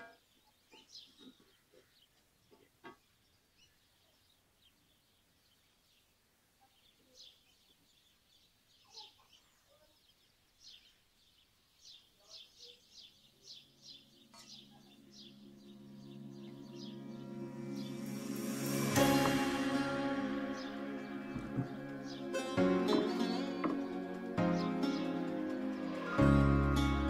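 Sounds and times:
faint bird chirps: 0.0s - 26.2s
soft background music: 13.7s - 27.0s.

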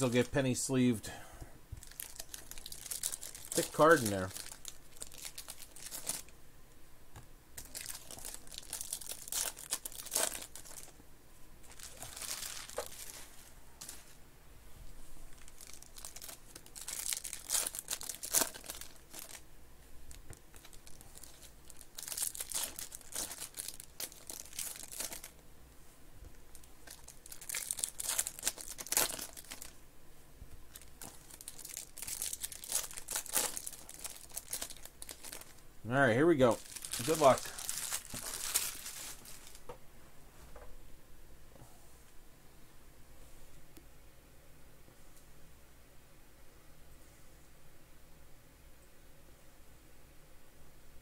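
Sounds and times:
foil wrappers tearing and crinkling: 1.8s - 6.3s, 7.6s - 11.0s, 11.7s - 14.0s, 15.3s - 19.4s, 20.1s - 25.4s, 26.5s - 29.8s, 30.7s - 35.6s, 36.4s - 39.6s
cards being handled: 36.5s - 39.6s.

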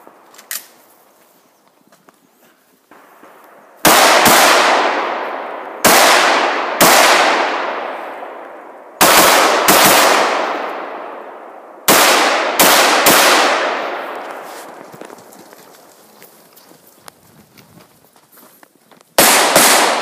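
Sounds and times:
rifle shots echoing: 2.9s - 14.8s, 19.2s - 20.0s.

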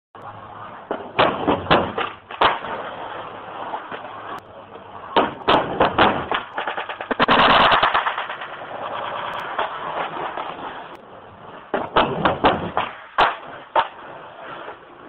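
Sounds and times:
skateboard clacking: 0.2s - 15.0s
skateboard grinding on wooden ledge: 5.2s - 14.8s.

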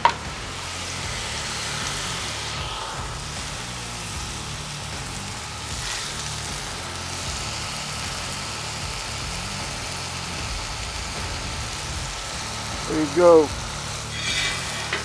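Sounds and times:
low rumble: 0.0s - 7.7s, 9.0s - 12.9s
food sizzling on griddle: 0.0s - 15.0s.

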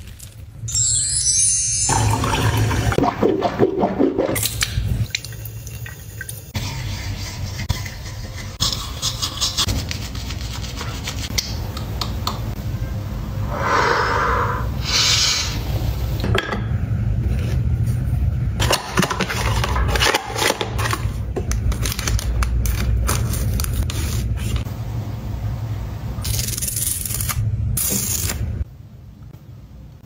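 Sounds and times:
toothbrush scrubbing teeth: 6.6s - 11.6s.

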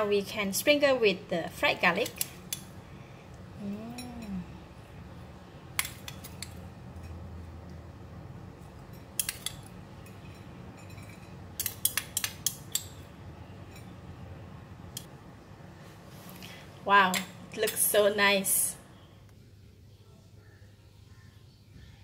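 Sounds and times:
metal spoon clinking glass bowl: 8.8s - 13.0s.

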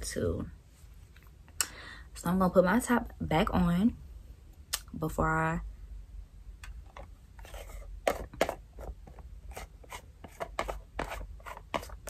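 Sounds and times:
plastic lid clicking and scraping: 6.6s - 12.0s.

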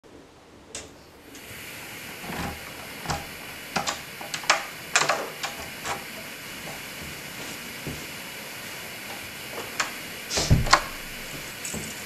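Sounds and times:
door lock clicking and rattling: 9.7s - 11.9s.

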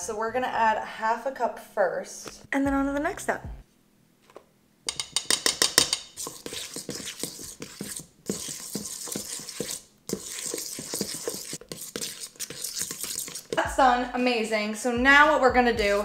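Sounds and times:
fork clinking against metal bowl: 4.9s - 6.2s.

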